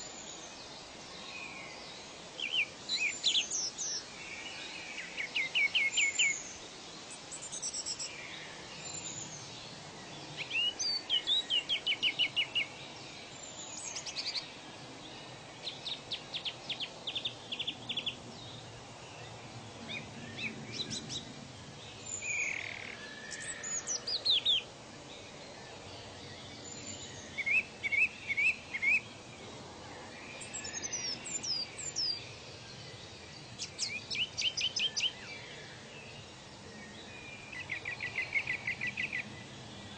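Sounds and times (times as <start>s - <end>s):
steady background hiss: 0.0s - 39.9s
birds chirping and whistling: 22.1s - 24.6s.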